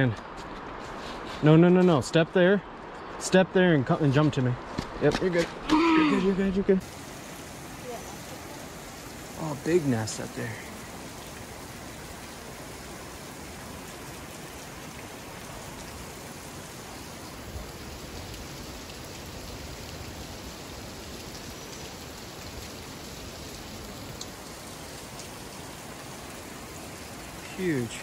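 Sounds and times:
steady wash of water: 6.8s - 28.0s.

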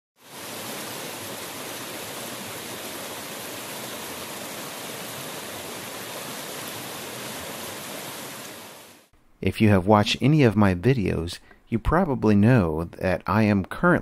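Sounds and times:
mountain stream flowing: 0.2s - 9.1s.

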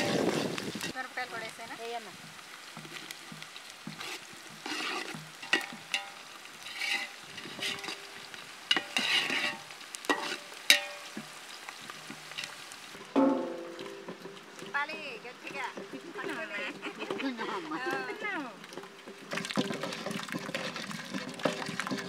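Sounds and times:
skimmer scraping metal pot: 0.0s - 1.0s, 2.2s - 22.0s
onions frying in a pot: 0.0s - 22.0s
knocks ringing a metal pot: 10.1s - 11.3s, 13.1s - 14.4s.

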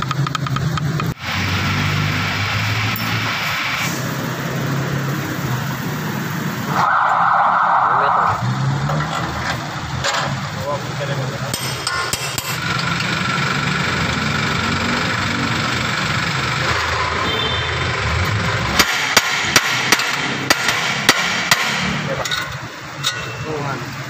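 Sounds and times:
sharp knocks: 18.7s - 22.2s.

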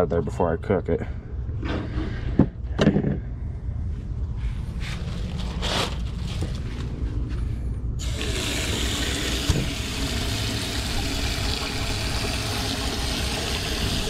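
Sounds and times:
faucet turned on: 8.0s - 14.0s
tap water splashing in sink: 9.0s - 14.0s.

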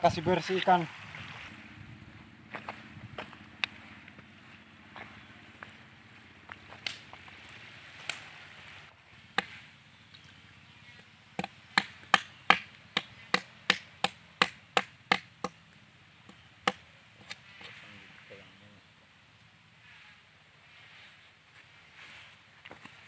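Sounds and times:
knife chopping fish on log: 11.4s - 15.6s.

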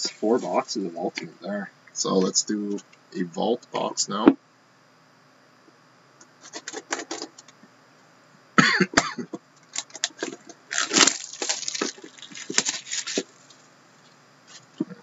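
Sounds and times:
cardboard scraping and rustling: 9.8s - 13.6s.

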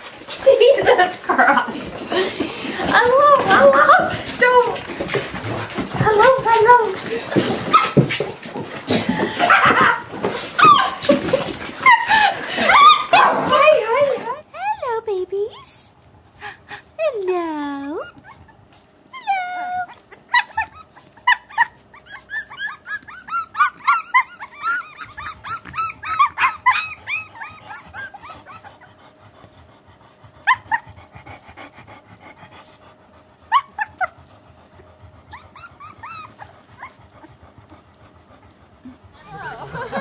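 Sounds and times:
puppies yipping and squealing: 7.6s - 8.2s, 9.2s - 14.4s, 18.0s - 29.0s, 30.4s - 31.0s, 33.4s - 37.9s.

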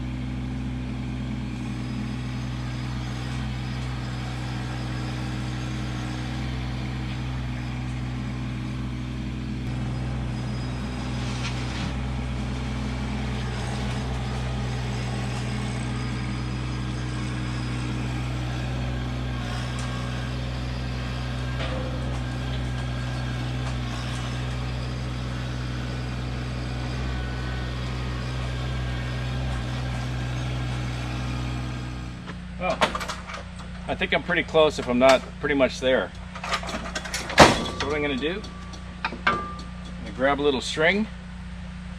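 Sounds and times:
tractor diesel engine running: 0.0s - 41.9s
loader bucket knocks: 21.5s - 23.0s, 36.4s - 40.2s.

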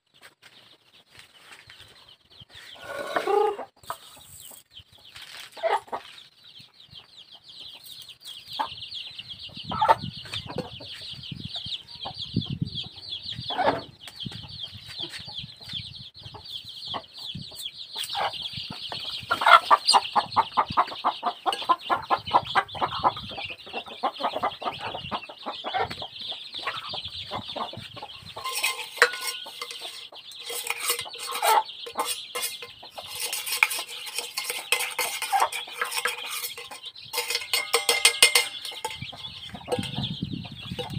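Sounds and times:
chickens clucking: 0.2s - 40.9s
metal basin and utensils clinking: 28.3s - 40.9s
spoon clinking against metal cup: 28.4s - 40.0s.

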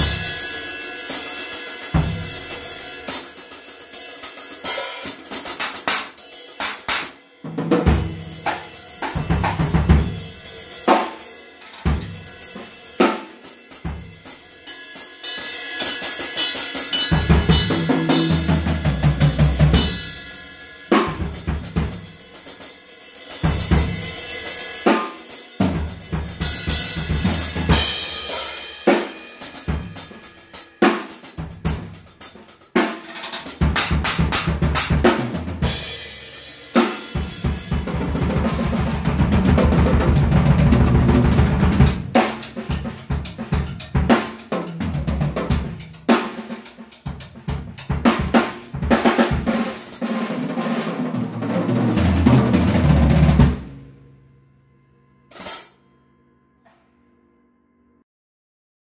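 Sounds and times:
drum solo: 0.0s - 54.1s, 55.3s - 55.8s
cymbal crashes: 55.3s - 55.8s.

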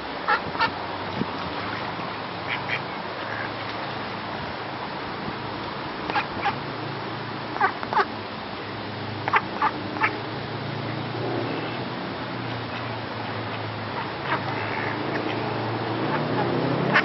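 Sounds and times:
steady background noise: 0.0s - 17.0s
ducks quacking: 2.4s - 3.6s, 7.5s - 8.1s, 9.2s - 10.2s, 12.7s - 17.0s.

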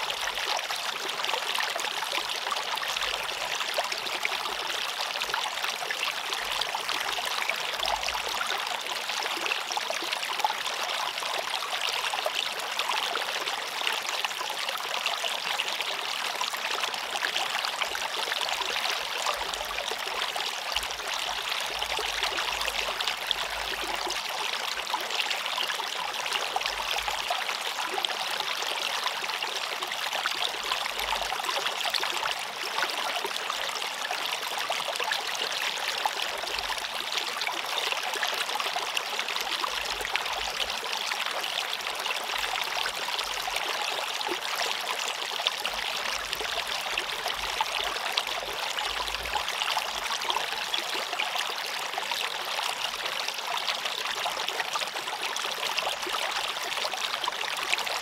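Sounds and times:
stream flowing over rocks: 0.0s - 58.0s.

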